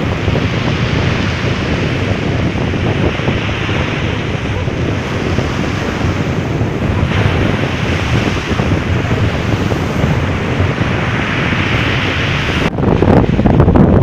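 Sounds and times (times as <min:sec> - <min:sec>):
surf on pebble beach: 0:00.0 - 0:14.0
wind buffeting microphone: 0:00.0 - 0:14.0.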